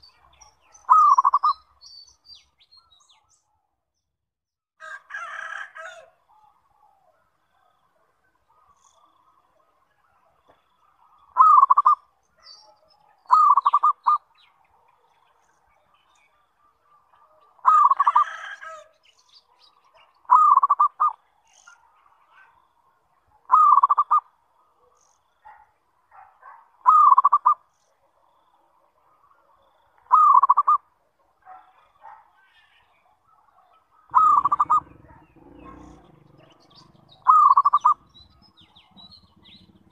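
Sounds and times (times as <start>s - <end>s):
dove cooing: 0.9s - 1.6s, 11.3s - 12.0s, 13.3s - 14.2s, 17.6s - 18.9s, 20.3s - 21.2s, 23.5s - 24.2s, 26.4s - 27.6s, 30.1s - 30.8s, 34.1s - 39.9s.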